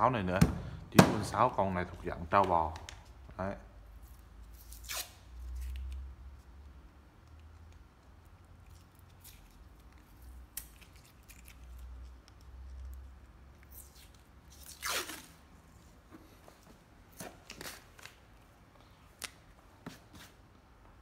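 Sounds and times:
masking tape ripping off roll: 4.5 - 6.0, 13.6 - 15.5.

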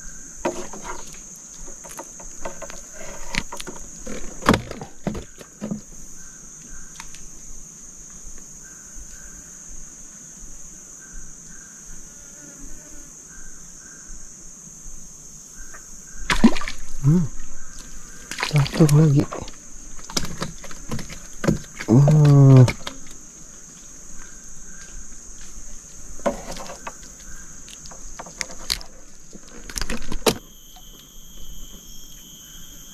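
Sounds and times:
insects droning: 0.0 - 32.9
handling clicks and knocks: 26.2 - 30.4.

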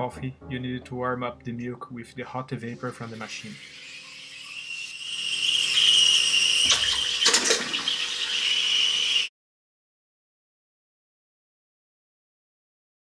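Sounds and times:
steam wand frothing milk: 2.8 - 9.3.

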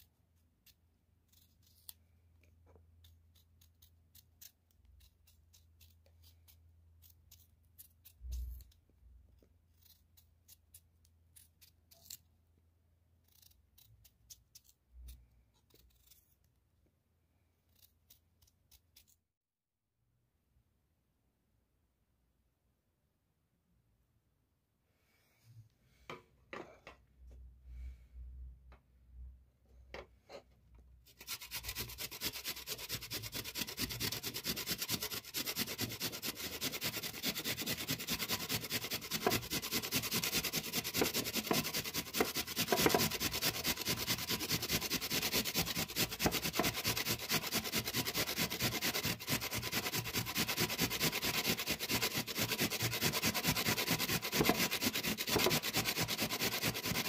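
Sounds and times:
box grater rasping: 31.1 - 57.0.

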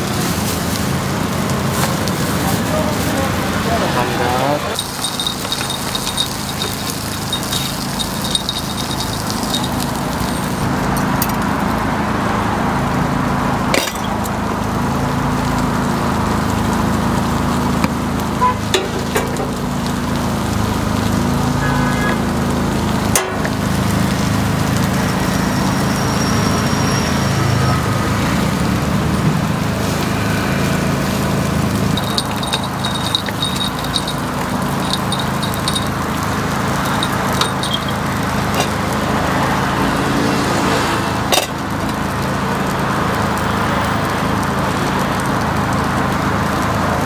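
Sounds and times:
griddle sizzling: 0.0 - 47.0
metal clinks: 4.7 - 11.4, 31.9 - 38.8.

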